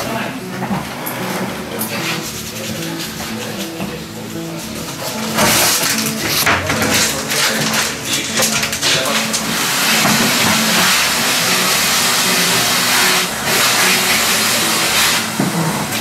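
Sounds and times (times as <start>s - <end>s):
quiet background music: 0.0s - 16.0s
loud hiss: 1.9s - 16.0s.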